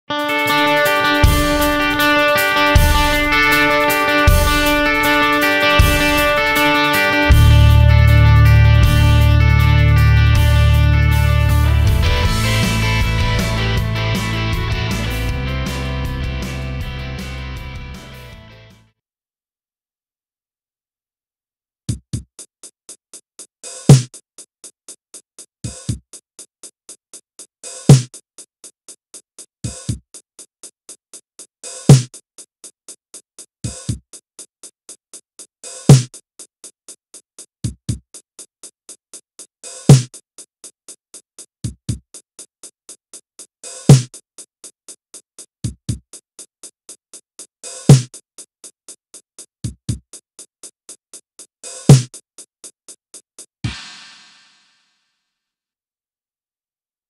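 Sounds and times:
closed hi-hat ticking: 0.4s - 10.6s
bass drum hits: 2.8s - 3.5s, 7.3s - 18.4s
loud accented drum hit: 2.8s - 3.7s, 4.3s - 5.2s, 5.8s - 6.6s, 11.7s - 16.9s, 53.7s - 54.7s.

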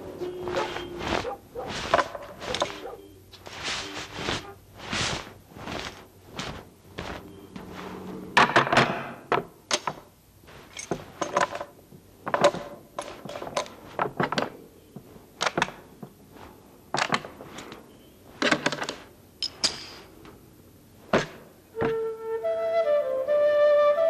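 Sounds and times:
sharp knocks and clatters: 8.4s - 16.2s.

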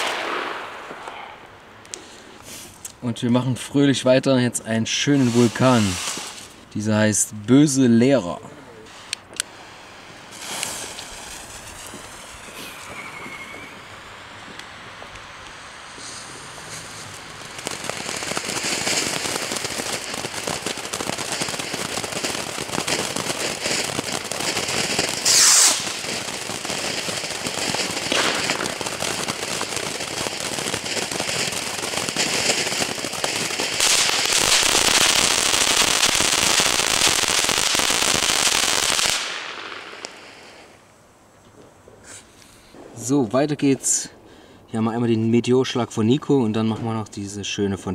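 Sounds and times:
firework fountain hissing: 0.0s - 2.8s, 5.0s - 6.7s, 8.8s - 41.0s.

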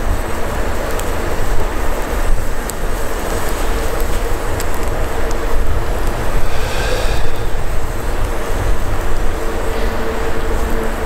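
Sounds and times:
campfire crackling and popping: 0.0s - 9.3s
loud low rumble: 5.2s - 9.1s.

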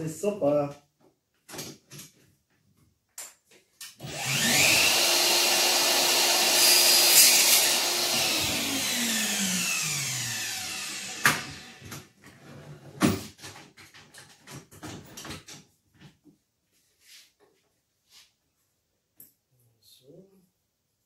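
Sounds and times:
tools clicking and tapping: 3.1s - 4.0s
power tool motor winding down: 4.0s - 12.0s.

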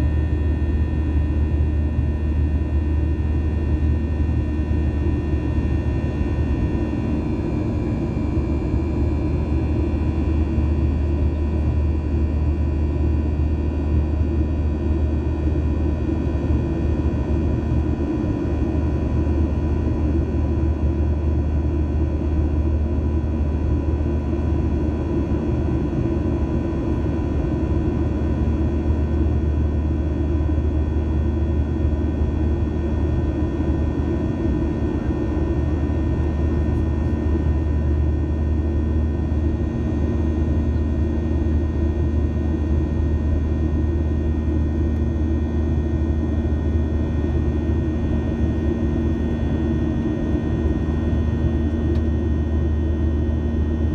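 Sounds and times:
jet engine and airflow rumble: 0.0s - 53.9s.

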